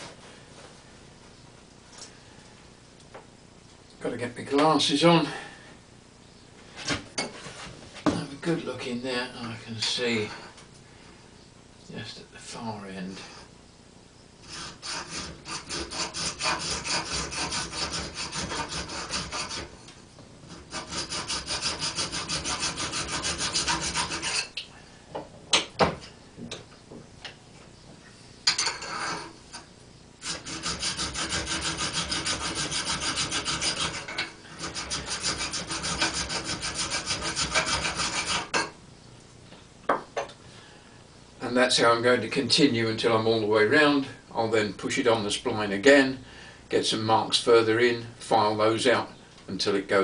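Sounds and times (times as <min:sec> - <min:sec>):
hand file rasping on metal: 0:14.4 - 0:19.7, 0:20.5 - 0:24.6, 0:30.2 - 0:38.7.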